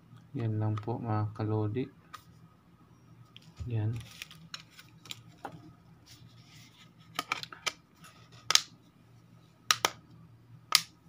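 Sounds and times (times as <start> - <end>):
plastic phone cover clicking: 9.7 - 10.0.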